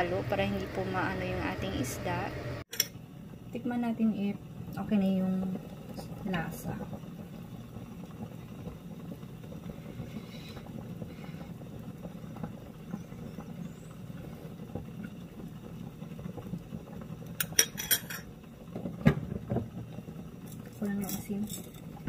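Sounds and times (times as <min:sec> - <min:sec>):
steady low hum: 0:00.0 - 0:18.7
pot lid clanking: 0:17.4 - 0:18.3.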